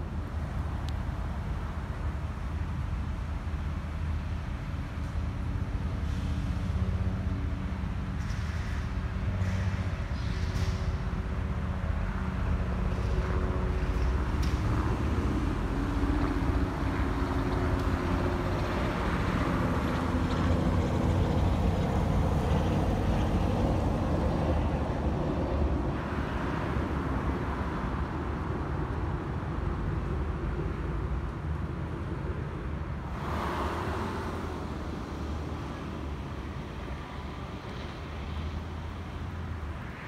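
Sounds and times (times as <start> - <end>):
pickup truck driving past: 33.1 - 36.4.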